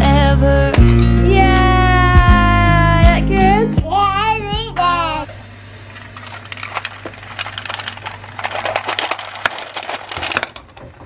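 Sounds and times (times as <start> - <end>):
candy eggs clattering into bowl: 6.0 - 11.0.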